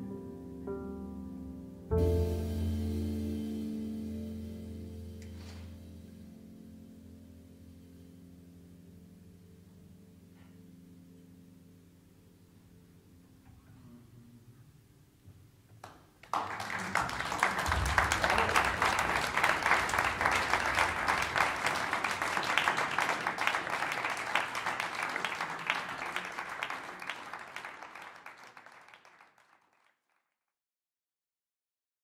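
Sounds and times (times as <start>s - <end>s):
audience applauding: 15.8s - 30.2s.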